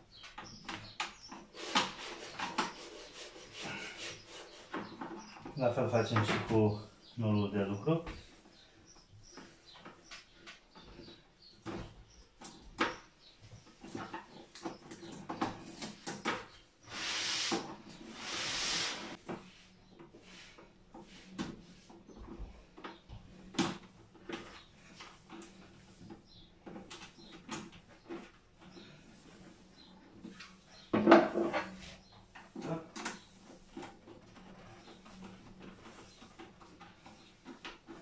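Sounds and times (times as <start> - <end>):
scratchy rustles: 0.5 - 7.2, 24.0 - 38.0.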